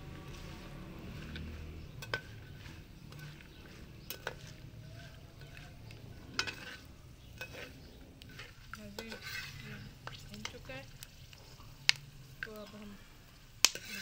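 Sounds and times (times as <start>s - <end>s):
faint sizzle: 0.0s - 14.0s
metal spatula scraping pan: 0.0s - 14.0s
spatula clinking against pan: 1.2s - 10.7s.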